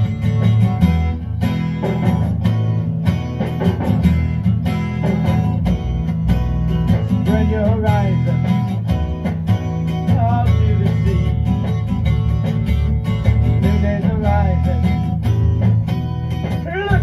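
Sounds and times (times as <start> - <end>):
electric guitar bending notes: 0.0 - 17.0
rock band playing: 0.0 - 17.0.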